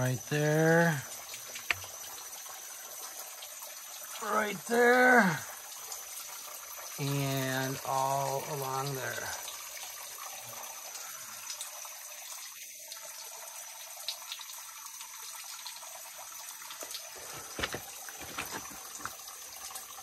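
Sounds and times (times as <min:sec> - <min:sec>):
water trickling and dripping: 0:00.0 - 0:20.0.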